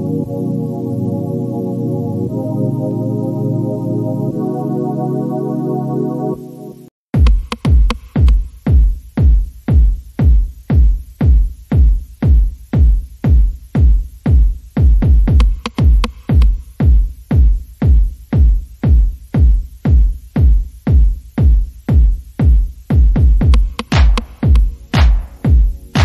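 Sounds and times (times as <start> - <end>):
electronic dance music: 0.0 - 26.0
heavy kick drum: 7.1 - 26.0.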